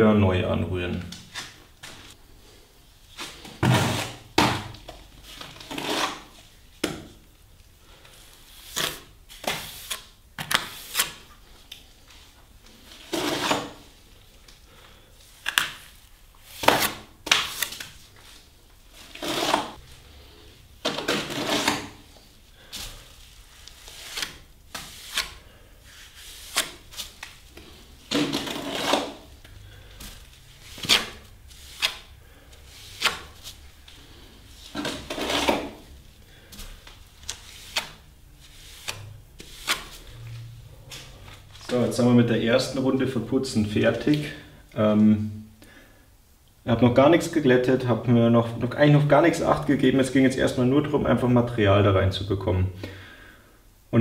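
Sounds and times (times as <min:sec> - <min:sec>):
trowel scraping and slapping plaster: 0:03.2 - 0:04.8, 0:05.4 - 0:06.4, 0:12.8 - 0:13.8, 0:19.0 - 0:19.8, 0:20.8 - 0:22.0, 0:28.1 - 0:29.3, 0:34.7 - 0:35.8.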